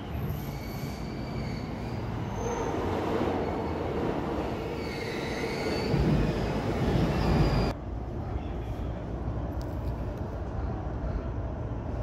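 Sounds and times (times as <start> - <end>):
train wheels rumbling on rail: 0.0 - 7.8.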